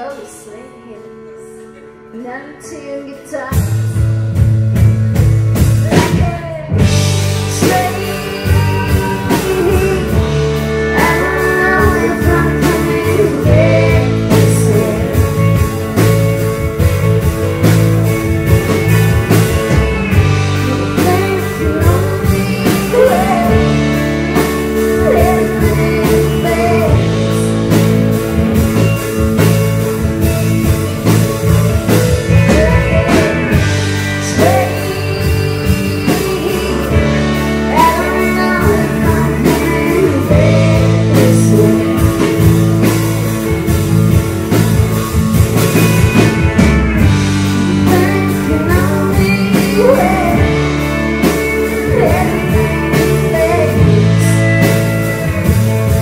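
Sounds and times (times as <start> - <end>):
woman singing: 0.0 - 3.8, 5.8 - 16.0, 20.1 - 27.9, 32.2 - 43.1, 47.4 - 56.0
bass guitar: 0.0 - 56.0
electric guitar: 0.0 - 56.0
drum kit: 3.2 - 56.0.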